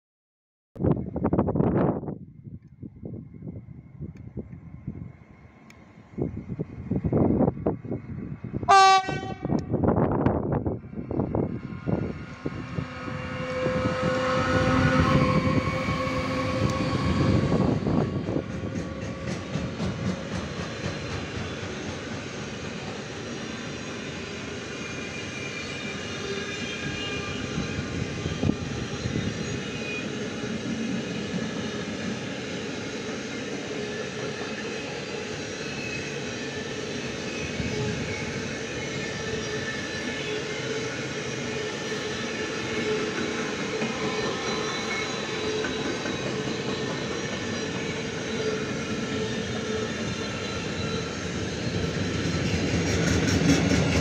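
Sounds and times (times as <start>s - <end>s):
locomotive passing: 4.6s - 54.0s
train wagons rolling on rails: 9.6s - 54.0s.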